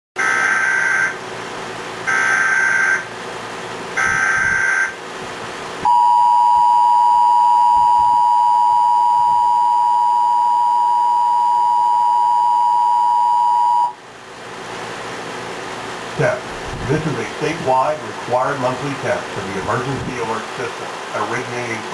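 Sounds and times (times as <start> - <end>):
digital header bursts: 2.1 - 3.2, 4.0 - 5.0
two-tone attention signal: 5.8 - 14.0.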